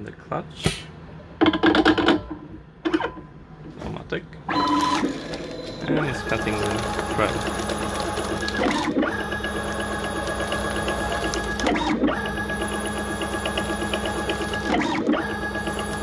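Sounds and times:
lathe mechanical whine: 4.6s - 16.0s.

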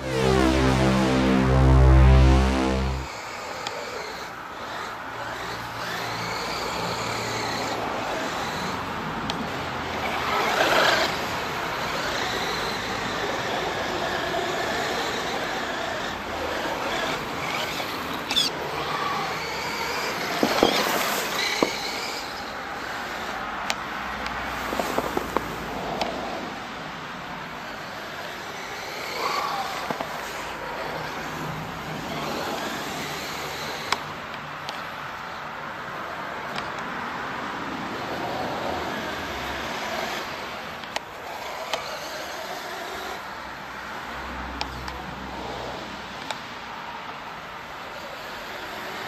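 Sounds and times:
electric motor whining: 0.0s - 8.8s
tyres churning through snow: 0.0s - 23.4s.

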